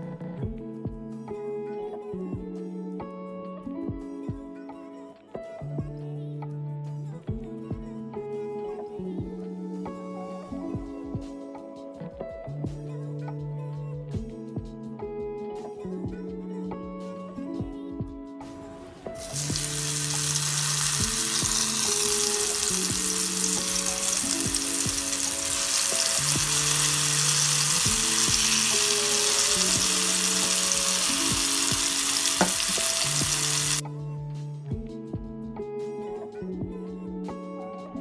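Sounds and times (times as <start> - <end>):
soft background music: 0.0 - 38.0
fruit sizzling in hot oil: 19.2 - 33.8.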